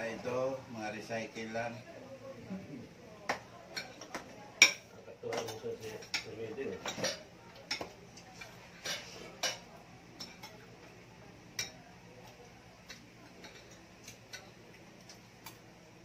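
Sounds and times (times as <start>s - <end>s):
cutlery clinking on plates: 3.3s - 10.9s, 11.6s - 15.6s.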